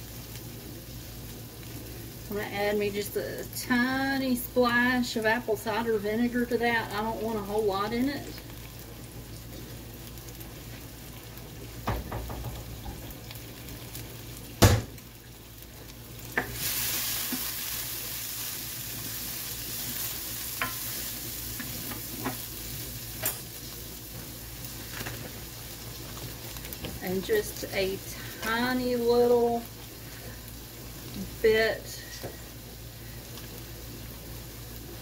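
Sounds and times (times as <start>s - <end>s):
vegetables sizzling in oil: 0.0s - 35.0s
spoon stirring in a skillet: 18.9s - 28.8s.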